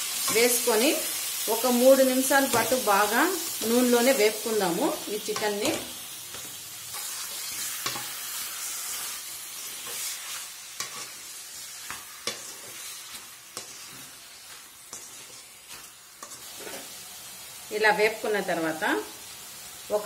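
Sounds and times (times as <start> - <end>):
chicken sizzling in hot oil: 0.0 - 20.0
spatula scraping pan: 5.2 - 17.0.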